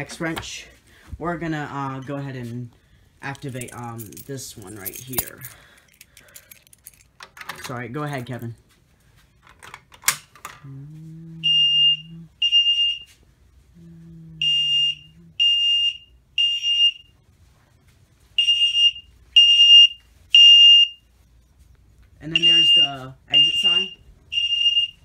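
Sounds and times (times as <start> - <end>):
fire alarm horn beeping: 11.4 - 13.2, 14.4 - 17.2, 18.4 - 21.1, 22.2 - 25.0.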